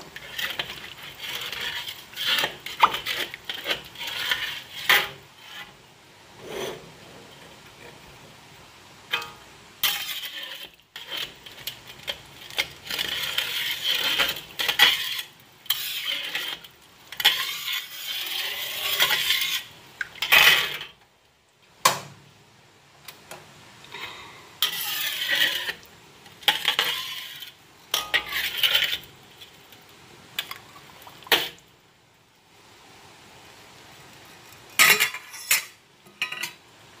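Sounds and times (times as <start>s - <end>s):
metal spatula scraping a wok: 0.0s - 7.2s, 9.1s - 21.0s, 24.0s - 29.6s, 31.2s - 31.6s, 34.7s - 36.6s.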